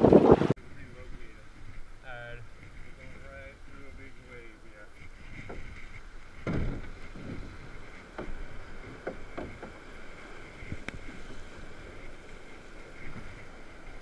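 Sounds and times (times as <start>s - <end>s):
rushing river water: 0.0s - 14.0s
low knocks and thumps: 4.8s - 14.0s.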